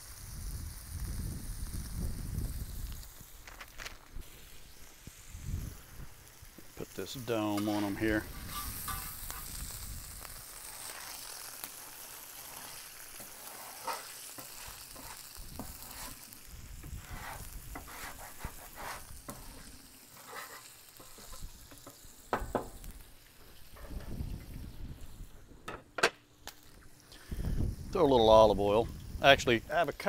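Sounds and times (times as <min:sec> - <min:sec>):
meat sizzling on a griddle: 0:00.0 - 0:25.6, 0:26.4 - 0:30.0
metal scraper scraping griddle: 0:07.5 - 0:09.6, 0:10.6 - 0:16.2, 0:16.9 - 0:21.4.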